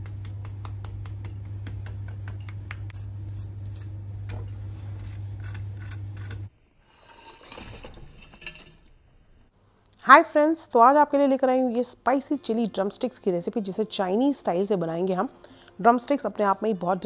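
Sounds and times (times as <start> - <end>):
fork tapping and scraping on plate: 0.0 - 3.0
steady low hum: 0.0 - 6.5.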